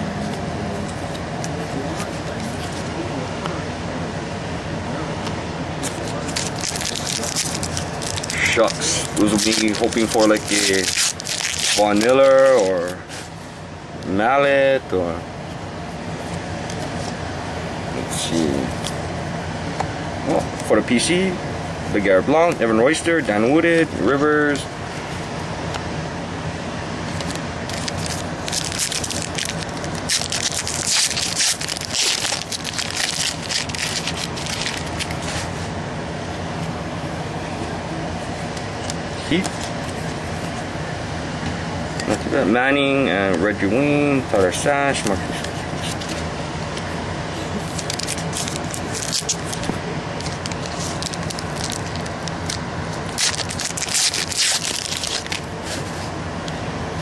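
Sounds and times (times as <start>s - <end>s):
steady low hum: 0.0s - 57.0s
foil wrapper crinkling: 5.8s - 13.0s, 27.2s - 35.5s, 47.6s - 56.0s
cards rustling and flicking: 5.8s - 13.3s, 27.1s - 35.6s, 44.9s - 46.3s, 47.6s - 56.1s.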